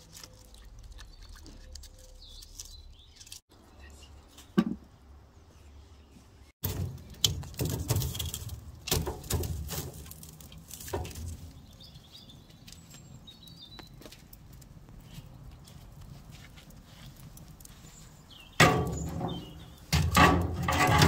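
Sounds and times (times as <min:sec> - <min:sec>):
logs knocking on metal grate: 0:04.6 - 0:04.8, 0:06.6 - 0:11.6, 0:18.6 - 0:21.0.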